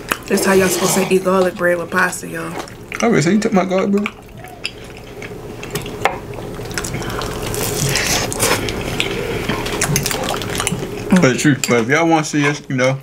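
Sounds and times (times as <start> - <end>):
wet chewing: 0.0 - 11.8
lip smacking: 3.7 - 11.0.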